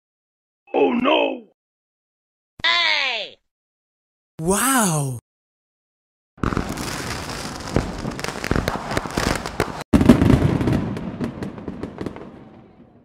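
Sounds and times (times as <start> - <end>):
crackling pops and bangs: 6.4 - 12.6.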